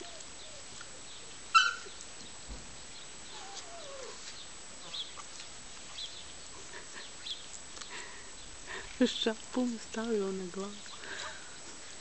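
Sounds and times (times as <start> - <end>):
puppy whining: 0.0 - 0.9, 3.3 - 5.0
puppy yelping: 1.5 - 1.9, 3.3 - 4.3.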